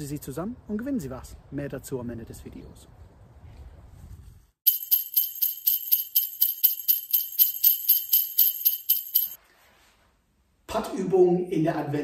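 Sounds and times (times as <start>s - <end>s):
jingle bells shaken: 4.7s - 9.4s.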